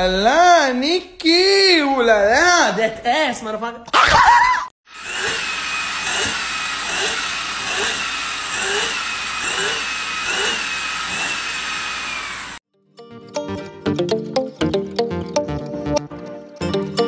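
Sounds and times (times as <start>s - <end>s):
stick vacuum whining: 4.9s - 12.6s.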